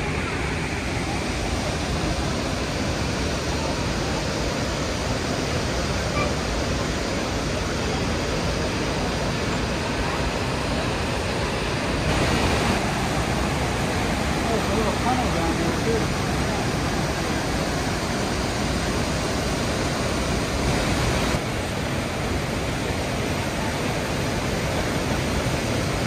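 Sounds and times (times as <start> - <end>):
waterfall rushing: 0.0 - 26.0.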